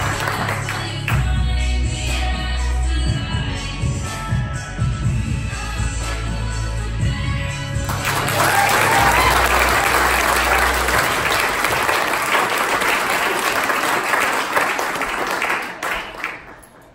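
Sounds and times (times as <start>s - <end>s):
audience applauding: 0.0s - 1.0s, 7.8s - 16.9s
voices cheering: 8.1s - 15.5s.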